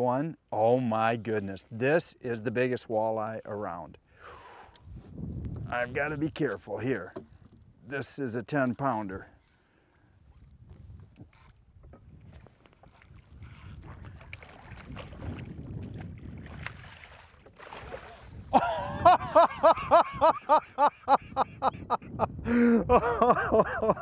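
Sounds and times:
wind: 0.0s - 24.0s
fish thrashing in water: 12.8s - 18.5s
man laughing loudly: 18.5s - 24.0s.

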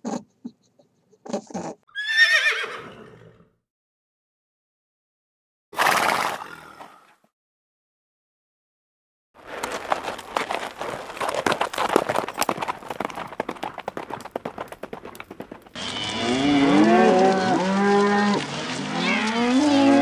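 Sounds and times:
horses splashing in water: 5.8s - 6.6s, 9.4s - 15.7s
cattle mooing: 15.8s - 20.0s.

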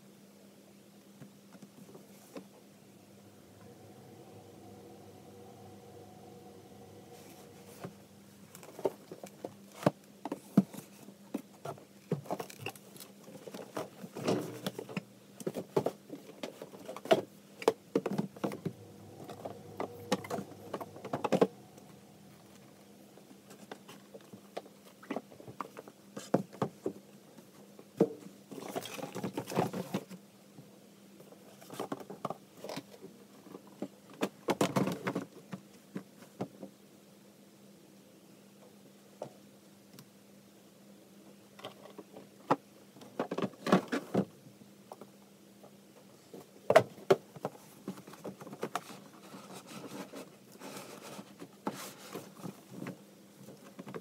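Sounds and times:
faint low hum: 2.2s - 9.5s, 17.9s - 25.1s
boxes scraping along shelf: 2.8s - 9.0s, 18.2s - 23.7s.

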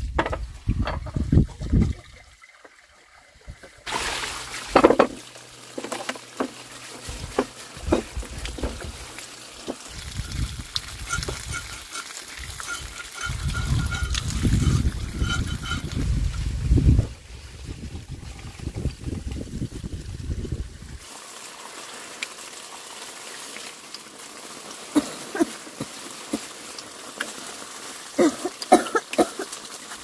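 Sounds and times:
water trickling and splashing: 0.3s - 30.0s
steady hiss: 16.0s - 30.0s.

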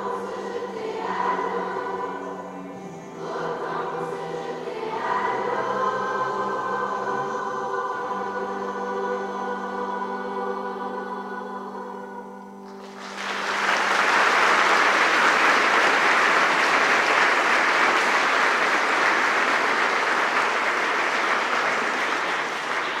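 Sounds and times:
choir held chord: 0.0s - 23.0s
audience applause: 12.7s - 23.0s.

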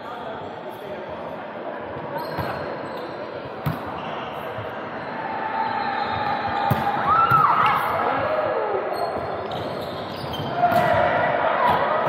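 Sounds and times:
shoe squeaks on gym floor: 2.1s - 5.1s, 8.9s - 10.8s
volleyball hits: 6.6s - 7.8s, 10.4s - 12.0s.

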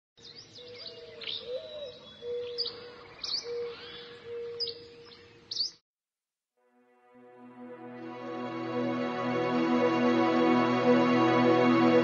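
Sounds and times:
birds chirping: 0.2s - 5.8s
low held note: 6.8s - 12.0s.

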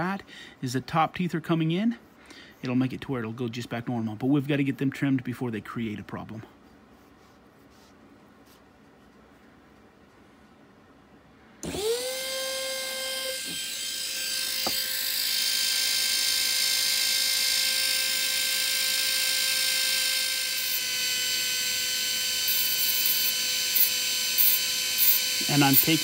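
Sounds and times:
rotary tool high whine: 11.6s - 26.0s
cutting disc hiss on teeth: 22.5s - 26.0s.

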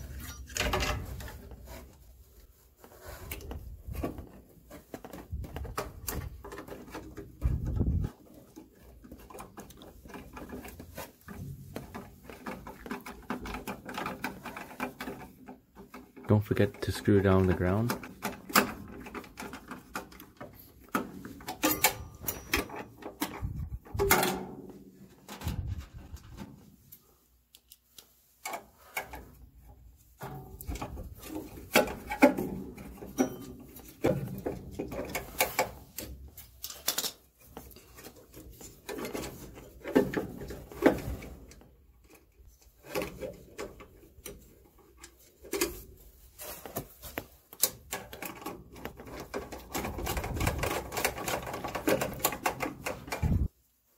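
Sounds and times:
metal parts clicking and scraping: 0.0s - 2.0s, 3.1s - 24.5s, 30.2s - 53.5s.

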